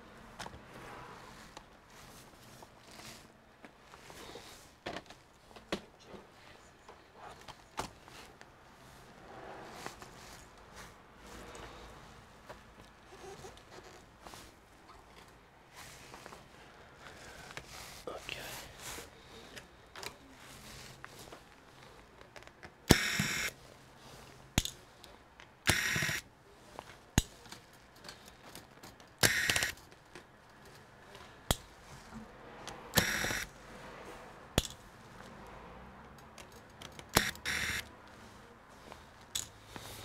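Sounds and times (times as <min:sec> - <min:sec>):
electric screwdriver whirring: 0:22.9 - 0:23.5, 0:25.7 - 0:26.2, 0:29.2 - 0:29.8, 0:32.9 - 0:33.5, 0:37.1 - 0:37.8
light metal and plastic clicks: 0:36.0 - 0:37.4.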